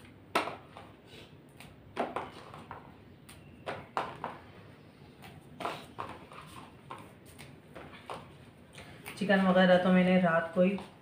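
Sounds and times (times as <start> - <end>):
chillies clicking and snapping: 0.0 - 4.5.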